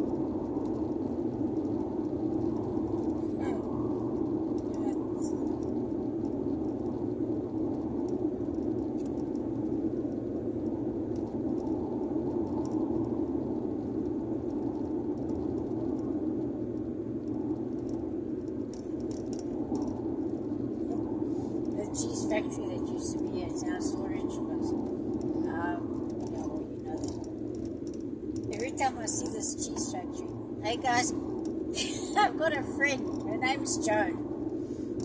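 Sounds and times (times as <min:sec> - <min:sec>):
car cabin road and engine hum: 0:00.0 - 0:35.0
faint clicks: 0:07.7 - 0:21.8, 0:24.7 - 0:31.7.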